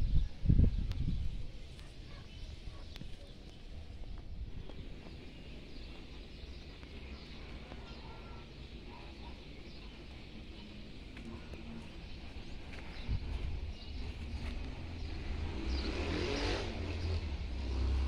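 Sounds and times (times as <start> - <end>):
faint bird chirps: 0.1 - 13.2.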